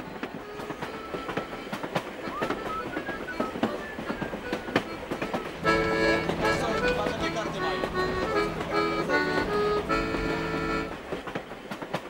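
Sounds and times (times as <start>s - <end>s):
accordion music: 0.0s - 11.1s
railway wagon rattling on track: 0.0s - 12.0s.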